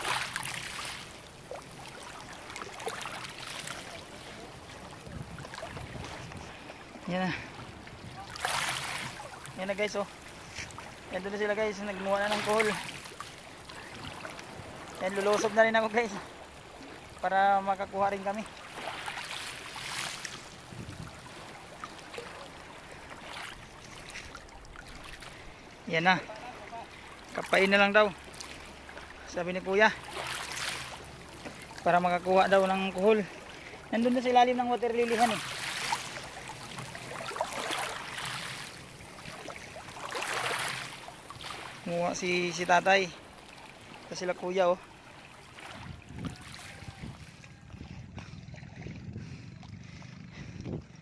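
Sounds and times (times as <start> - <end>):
rustle: 0.0 - 7.5
marsh water sloshing and splashing: 0.0 - 51.0.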